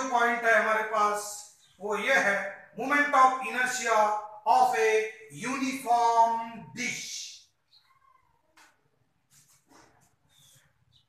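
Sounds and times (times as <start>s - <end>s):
marker squeaking on whiteboard: 7.4s - 11.0s.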